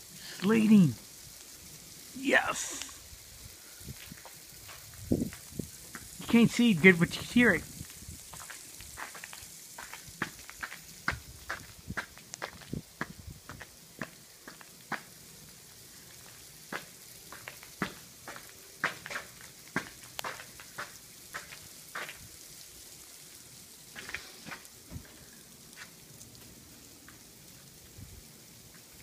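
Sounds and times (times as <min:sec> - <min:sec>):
sleet hissing: 0:00.0 - 0:12.9, 0:23.9 - 0:25.4
ice pellets ticking on hard surfaces: 0:00.3 - 0:27.9.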